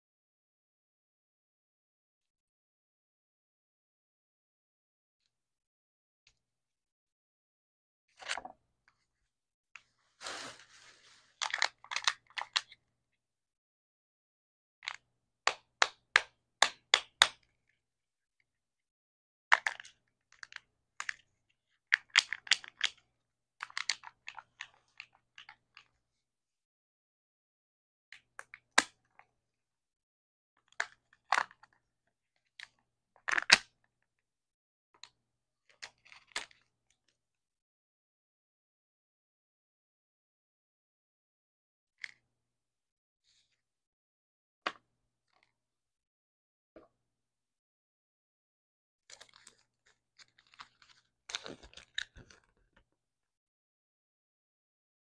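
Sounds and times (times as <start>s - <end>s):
plastic shell and foil rustling: 10.2s - 11.9s
plastic lid crinkling: 50.2s - 52.8s.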